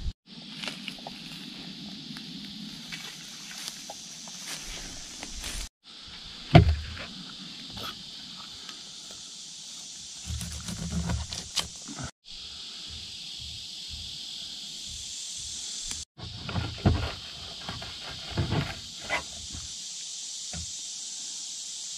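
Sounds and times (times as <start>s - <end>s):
insects droning: 0.0s - 21.9s
knife cutting and scraping fish: 10.2s - 11.8s.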